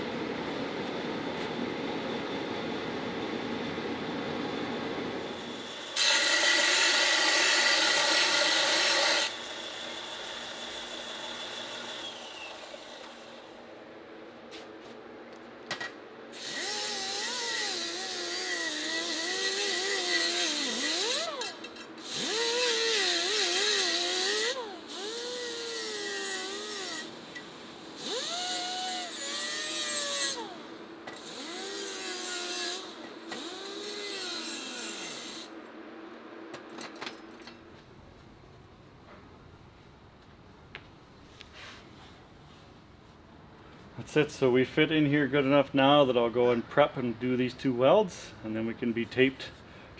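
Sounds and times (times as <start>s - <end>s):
power tool grinding metal tubing: 5.4s - 13.3s, 16.4s - 27.2s, 28.0s - 35.5s.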